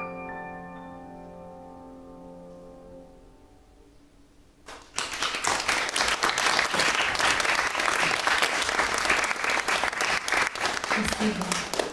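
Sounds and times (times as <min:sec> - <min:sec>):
audience applauding: 0:04.7 - 0:11.9.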